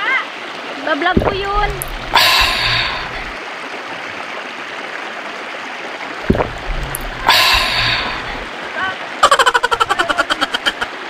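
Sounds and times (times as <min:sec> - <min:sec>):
low rumble of water surge: 0:01.2 - 0:03.4, 0:06.2 - 0:08.6
river water rushing: 0:01.2 - 0:03.4, 0:06.2 - 0:09.0.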